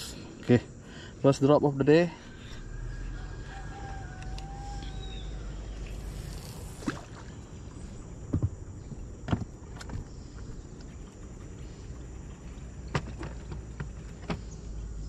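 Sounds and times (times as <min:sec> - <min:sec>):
low steady rumble: 0:00.0 - 0:15.0.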